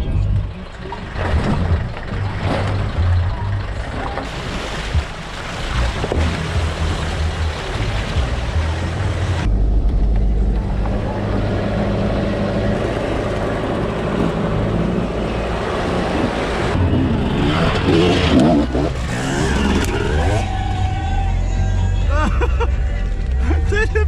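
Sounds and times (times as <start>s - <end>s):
engine running: 0.0s - 24.0s
wheels splashing through water: 0.5s - 9.5s.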